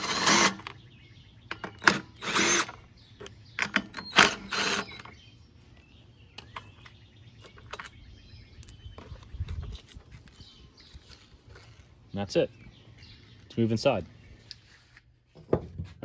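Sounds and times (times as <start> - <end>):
cordless power driver spinning nuts: 0.0 - 0.7, 1.8 - 2.8, 4.0 - 5.1.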